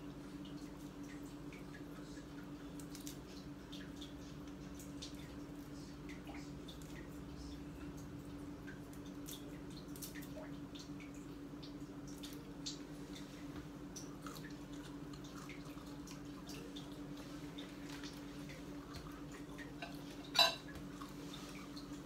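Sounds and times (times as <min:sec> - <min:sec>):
chewing and lip smacks: 0:07.8 - 0:19.8.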